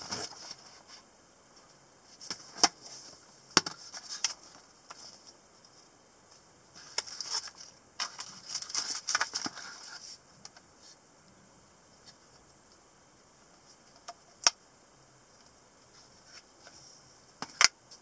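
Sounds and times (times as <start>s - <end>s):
paper rustling: 6.8s - 10.2s
unboxing handling noise: 6.8s - 10.6s.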